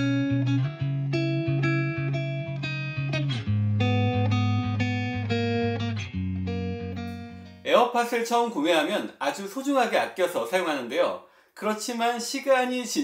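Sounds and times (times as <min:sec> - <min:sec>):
plucked guitar music: 0:00.0 - 0:07.8.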